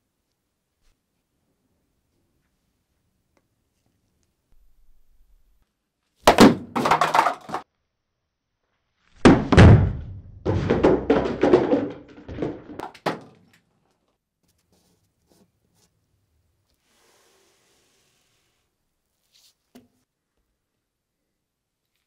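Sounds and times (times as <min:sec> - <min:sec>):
bat hitting paper cups: 0:06.2 - 0:07.6, 0:09.2 - 0:13.7
paper cups clattering: 0:06.7 - 0:07.6.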